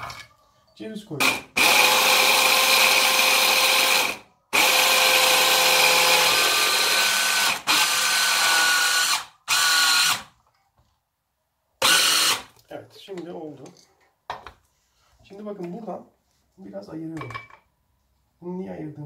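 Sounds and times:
electric blender motor whining: 0:01.6 - 0:10.2, 0:11.8 - 0:12.5.

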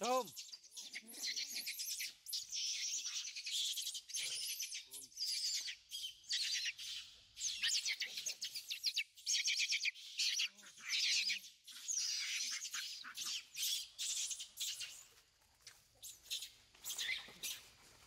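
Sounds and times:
monkeys scuffling: 0:14.1 - 0:18.0.

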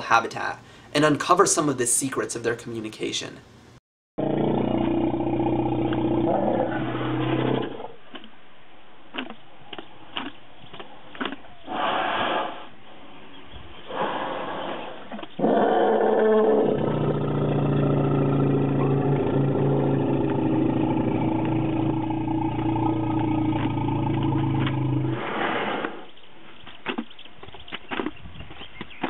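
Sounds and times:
elephant low rumble: 0:04.2 - 0:08.0, 0:10.6 - 0:26.1
elephant roaring: 0:04.2 - 0:08.0, 0:15.4 - 0:26.0.

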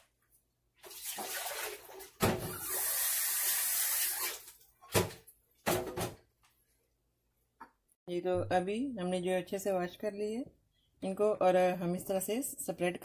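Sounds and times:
water pouring and splashing: 0:00.8 - 0:04.8.

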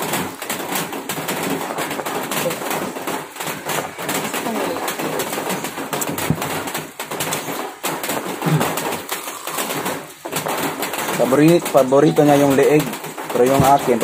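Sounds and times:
rain pattering: 0:00.0 - 0:14.0
crunching fried chicken: 0:07.2 - 0:12.9.

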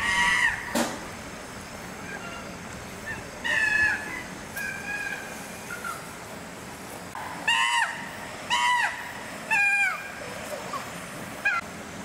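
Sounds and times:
chimpanzees calling: 0:02.0 - 0:06.2, 0:07.3 - 0:11.7.

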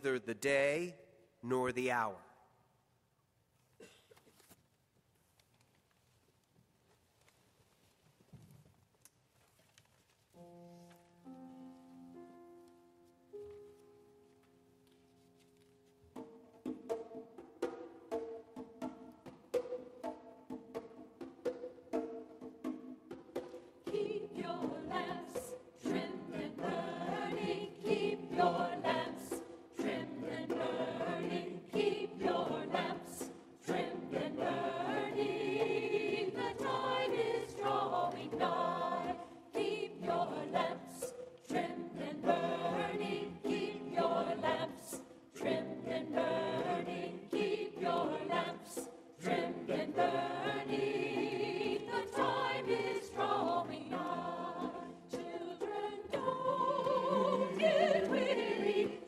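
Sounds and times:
choir singing in parts: 0:23.8 - 0:59.0.

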